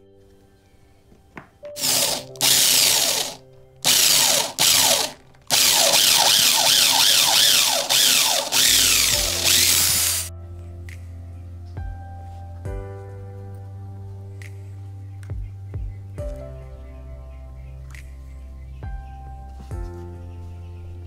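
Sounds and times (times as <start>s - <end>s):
electric drill boring into wood: 1.8s - 10.3s.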